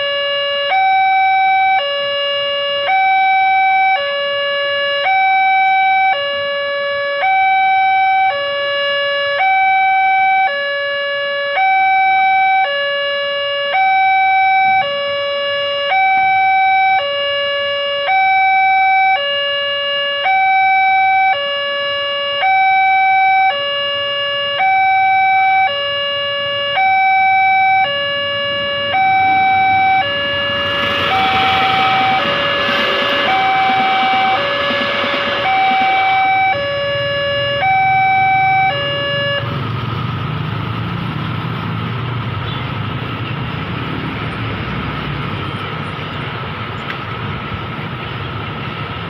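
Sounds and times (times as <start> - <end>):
level crossing alarm tones: 0.0 - 10.7, 26.5 - 39.5
train rumbling past: 28.4 - 38.0.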